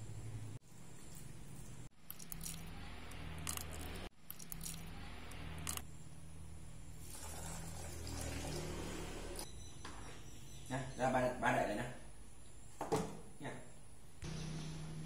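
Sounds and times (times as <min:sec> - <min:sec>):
milk pouring into jug: 0:07.0 - 0:09.2.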